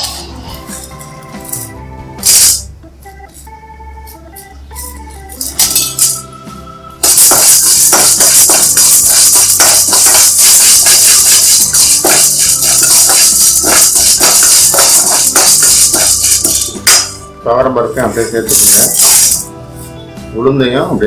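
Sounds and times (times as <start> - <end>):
background music: 0.0 - 21.0
lentils rattling in steel pan: 7.0 - 17.1, 18.5 - 19.5.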